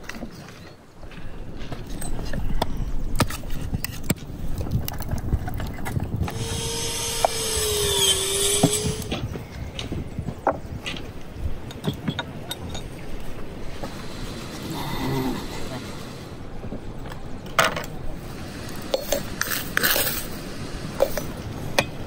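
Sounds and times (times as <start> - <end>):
hiss with faint whistling: 13.6 - 16.6.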